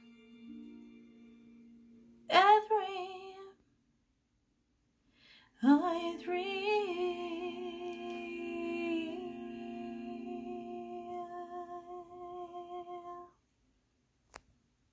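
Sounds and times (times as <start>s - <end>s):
woman singing: 2.3s - 3.6s, 5.6s - 13.3s.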